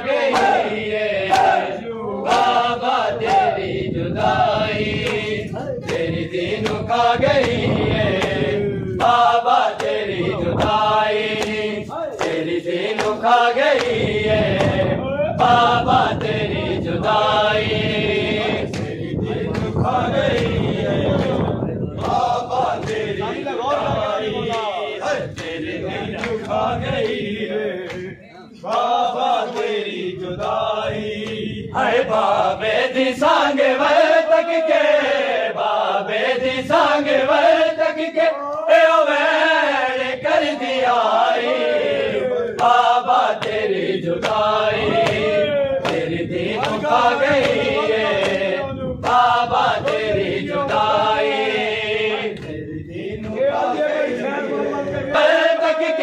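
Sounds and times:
men chanting a lament: 0.0 - 56.0
hands slapping chests: 0.3 - 0.6, 1.3 - 1.6, 5.0 - 6.8, 11.4 - 11.6, 12.2 - 14.0, 27.9 - 28.1.

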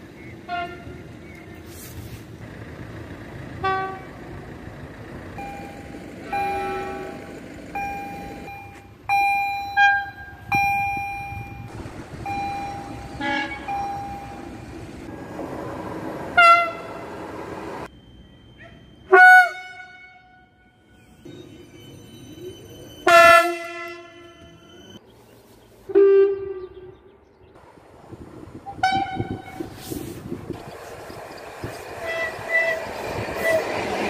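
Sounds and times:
train running noise: 0.0 - 25.0, 27.6 - 34.0
train horn blasts: 0.5 - 1.0, 3.6 - 4.1, 6.3 - 7.2, 13.1 - 13.8, 16.4 - 17.0, 19.1 - 20.8, 23.0 - 24.7, 25.9 - 26.9, 28.7 - 29.7, 32.0 - 33.9.

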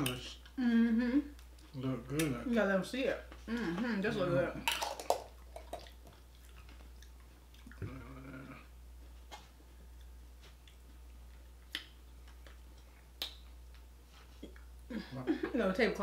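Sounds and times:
steady low hum: 0.0 - 16.0
mouth clicks and smacks: 11.6 - 14.8.

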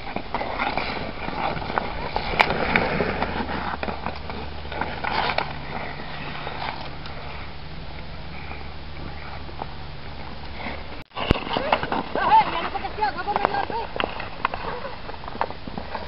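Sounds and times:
skate blades scraping ice: 0.0 - 7.6, 8.4 - 16.0
hockey sticks clacking on puck: 11.2 - 16.0.

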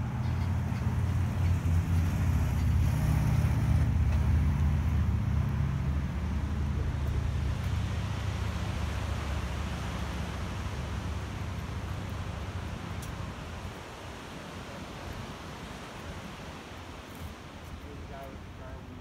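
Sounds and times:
vehicle engine rumble: 0.0 - 13.8.

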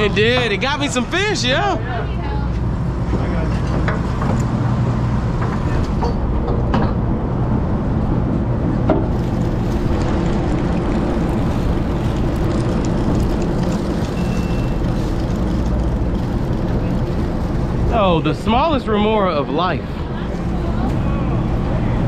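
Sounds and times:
boat engine droning: 0.0 - 22.0
wind: 0.0 - 22.0
water noise: 7.2 - 22.0.

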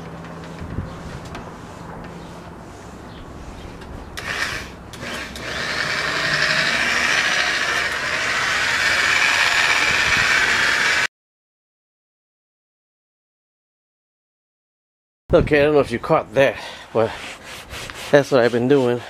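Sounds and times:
electric car buffer motor: 4.2 - 11.1.

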